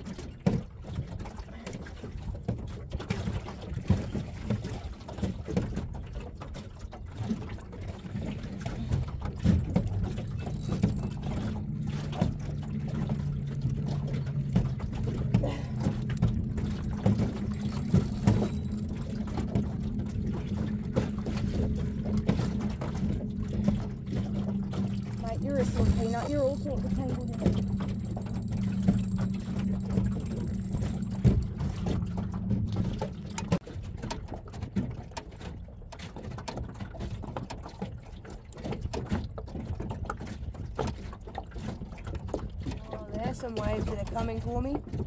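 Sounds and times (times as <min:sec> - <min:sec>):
water slapping against boat hull: 0:00.0 - 0:45.0
low steady hum: 0:08.6 - 0:33.6.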